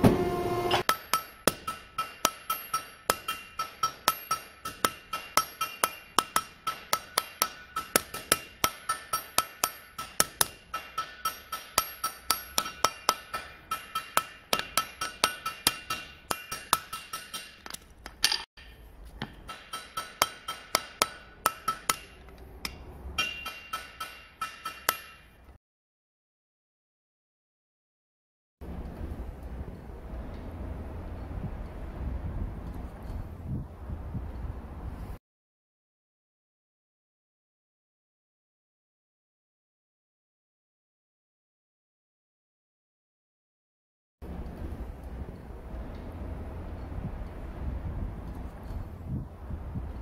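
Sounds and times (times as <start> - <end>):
hammer ringing on anvil: 0.8 - 17.6, 18.7 - 25.4.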